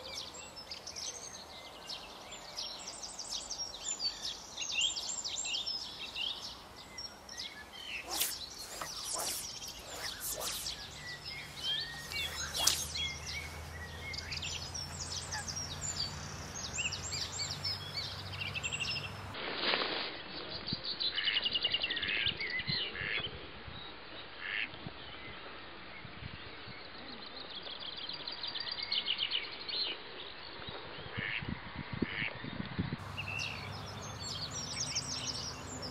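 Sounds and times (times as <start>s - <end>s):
birds calling and singing: 0.0s - 19.4s, 33.0s - 35.9s
steady low hum: 8.0s - 19.4s.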